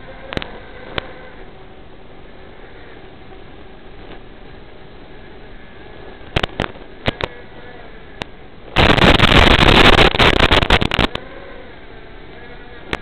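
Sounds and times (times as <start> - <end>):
loud stuttering static hiss: 2.2 - 13.0
radio static crackles: 2.5 - 13.0.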